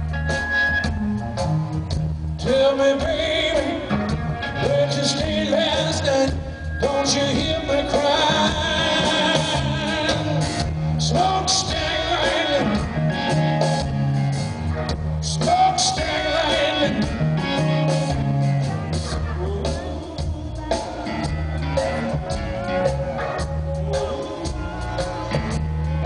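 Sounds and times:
drums: 0.0s - 26.0s
electric guitar: 0.0s - 26.0s
man singing: 2.4s - 13.7s, 15.2s - 21.4s, 22.8s - 25.3s.

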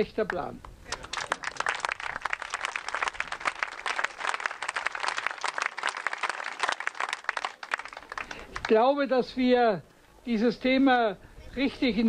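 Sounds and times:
crowd applauding: 0.9s - 8.8s.

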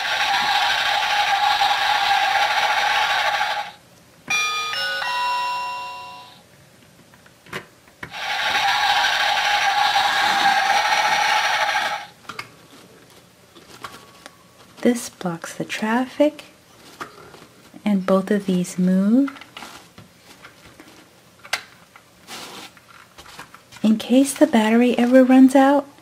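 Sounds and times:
electronic bell ringing: 4.3s - 6.4s.

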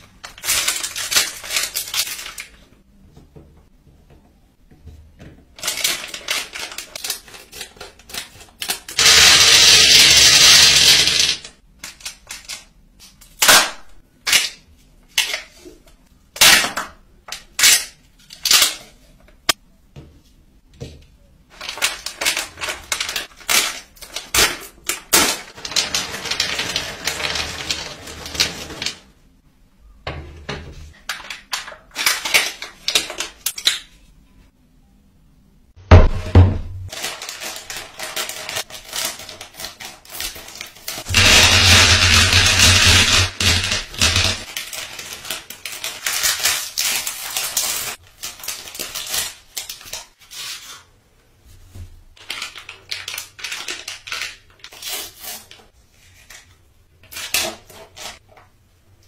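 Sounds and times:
candy wrappers rustling: 0.0s - 2.7s, 5.6s - 12.8s, 21.5s - 29.1s, 36.9s - 50.9s, 52.1s - 58.3s.

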